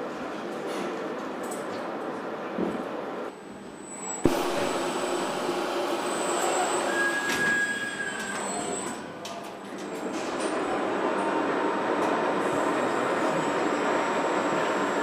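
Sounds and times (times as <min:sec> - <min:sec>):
high machine whine: 0:03.6 - 0:09.0.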